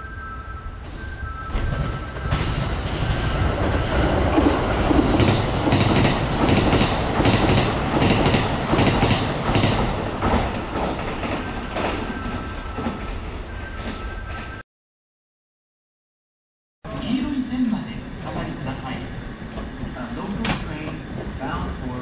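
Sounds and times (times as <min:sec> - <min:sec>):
train wheels clattering over rail joints: 0:01.5 - 0:12.1.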